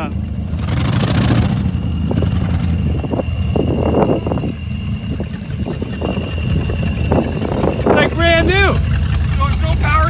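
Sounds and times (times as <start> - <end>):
car engine rumbling: 0.0 - 10.0
high-pitched whine: 0.0 - 10.0.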